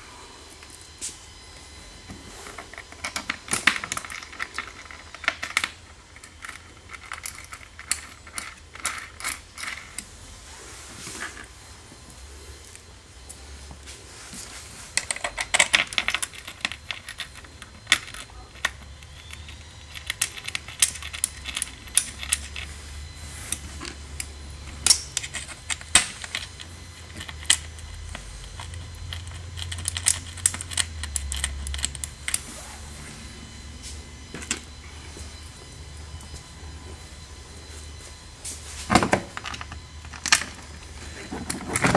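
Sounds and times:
metal bolts and washers clinking: 15.0 - 22.7, 23.5 - 32.4.

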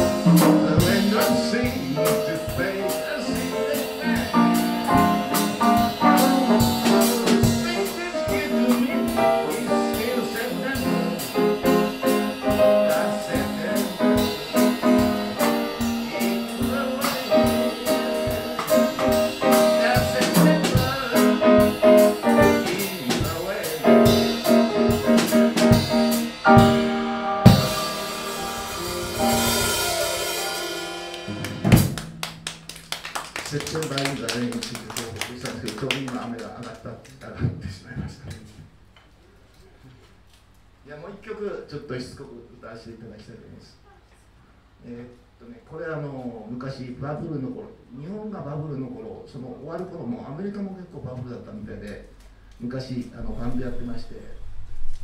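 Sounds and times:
jazz band playing: 0.0 - 33.2
cymbal wash: 20.8 - 32.0.

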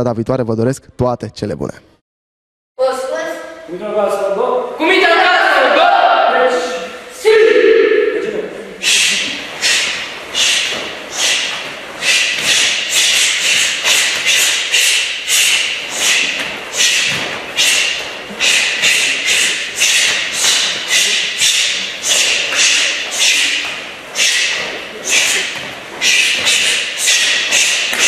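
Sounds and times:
swishing snaps of uniform kicks: 8.9 - 28.0.

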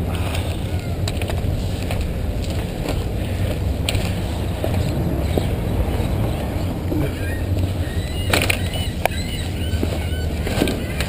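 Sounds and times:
bicycle tyres on pavement: 0.0 - 11.0
wind buffeting microphone: 0.0 - 11.0.

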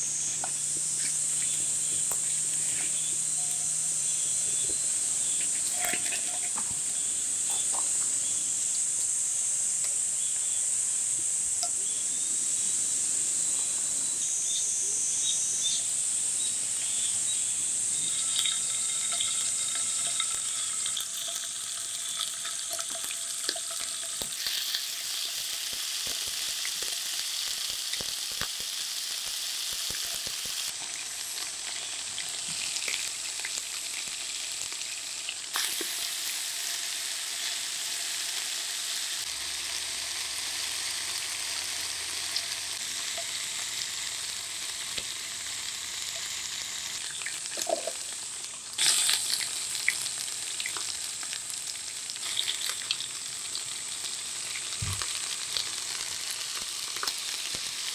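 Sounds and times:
food sizzling in a frying pan: 0.0 - 57.9
crackles and pops: 0.2 - 8.4, 18.0 - 36.8, 39.2 - 57.9.

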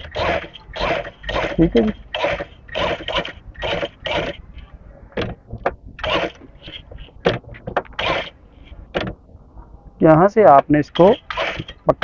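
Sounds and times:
sewing machine stitching: 0.0 - 4.4, 6.0 - 6.8.

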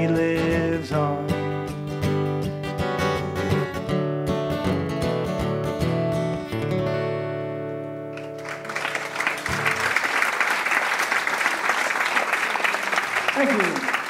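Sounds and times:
acoustic guitar playing: 0.0 - 10.0
audience applause: 8.2 - 14.0.

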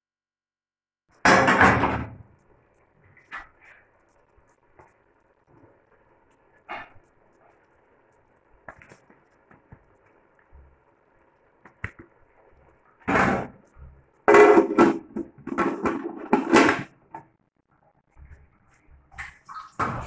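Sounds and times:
pot lid clanking and scraping: 14.3 - 16.9.

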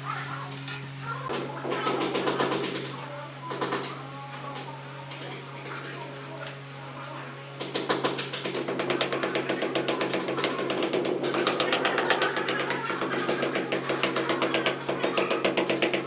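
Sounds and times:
rubber mallet tapping ceramic tile: 8.7 - 16.0.

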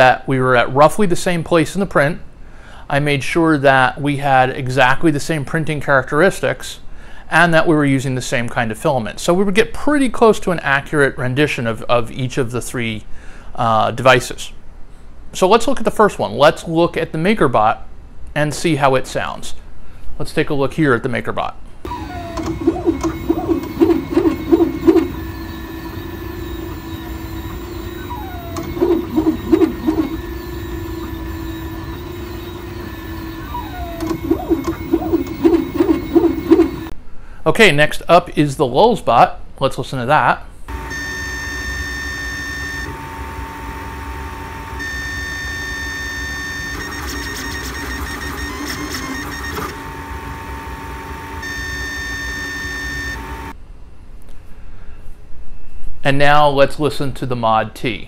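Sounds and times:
printer humming: 21.9 - 36.9, 40.7 - 53.5
warbling pulses: 21.9 - 36.9.

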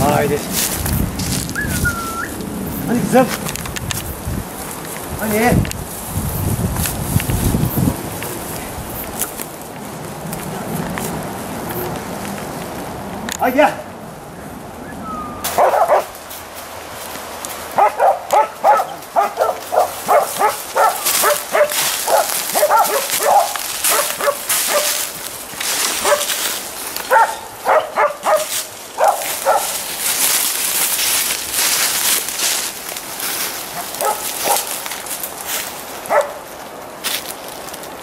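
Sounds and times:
dogs barking: 15.3 - 16.2, 17.7 - 25.2, 26.0 - 26.4, 27.0 - 29.8, 33.7 - 34.8, 36.0 - 36.5.

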